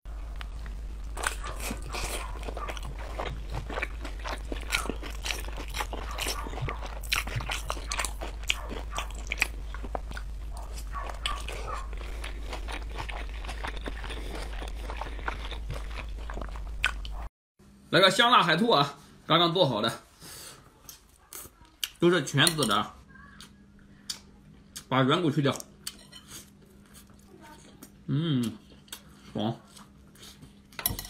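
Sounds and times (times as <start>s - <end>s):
steady low hum: 0.1s - 24.9s
crunchy chewing: 0.2s - 17.3s.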